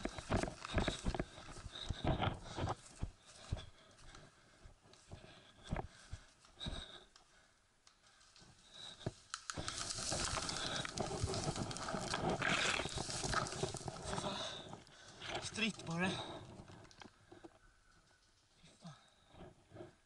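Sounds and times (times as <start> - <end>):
footsteps on grassy path: 0.0 - 7.0, 8.2 - 16.7
rustling of ferns and clothing: 0.0 - 20.0.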